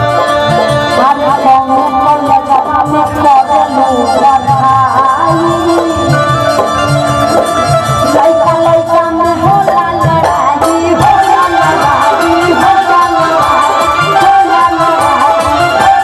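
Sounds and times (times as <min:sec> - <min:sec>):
reedy melody line: 0:00.0 - 0:16.0
steady drum beat: 0:00.0 - 0:16.0
woman singing into microphone: 0:00.0 - 0:16.0.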